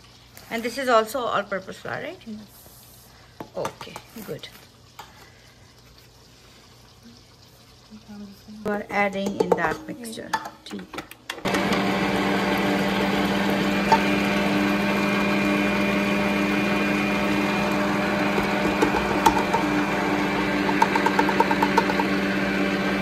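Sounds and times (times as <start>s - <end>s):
electric mixer motor running: 11.4s - 23.0s.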